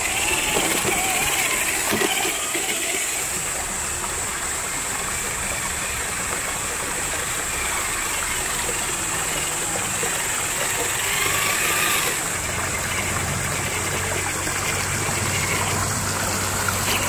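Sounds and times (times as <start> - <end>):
stream water rushing: 0.0 - 17.0.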